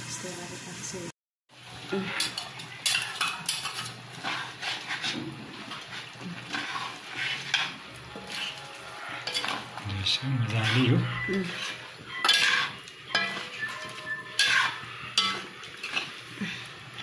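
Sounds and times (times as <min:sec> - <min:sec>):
spoon scraping a wok: 0:02.0 - 0:09.8, 0:10.4 - 0:16.3.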